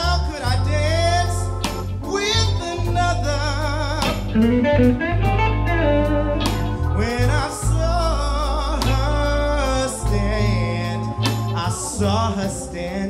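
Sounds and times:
man singing: 0:00.0 - 0:05.1, 0:06.8 - 0:13.0
live blues band: 0:00.0 - 0:13.0.

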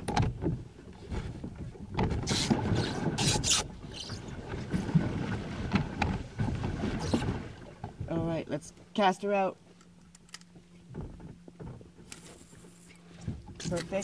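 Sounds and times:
rustling and knocks: 0:10.5 - 0:13.8.

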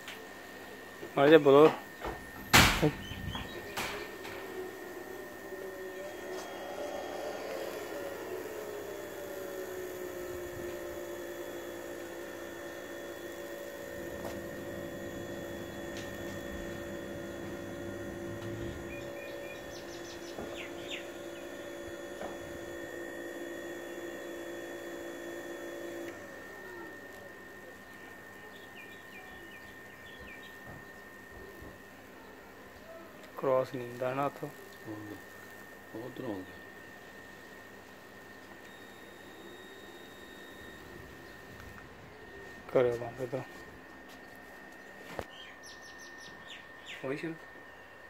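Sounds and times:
two-tone hum sliding down: 0:02.0 - 0:27.7
bird chirps: 0:18.6 - 0:21.4, 0:28.4 - 0:30.6, 0:45.3 - 0:47.1.

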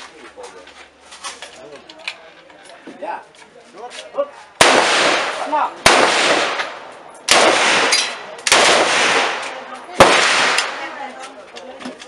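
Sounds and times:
rifle shots echoing: 0:04.6 - 0:11.2.

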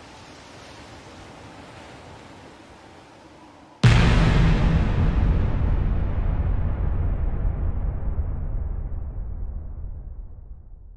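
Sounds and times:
deep noisy rumble: 0:03.8 - 0:10.9.

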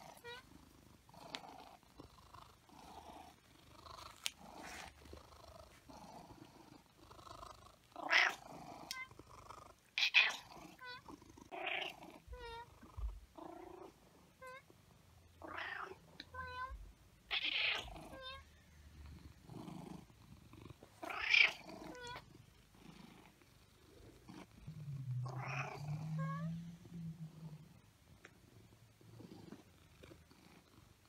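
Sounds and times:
cat raspy murmuring calls: 0:08.0 - 0:09.0, 0:21.0 - 0:22.2, 0:24.6 - 0:27.6
low steady rumble: 0:24.0 - 0:30.2.

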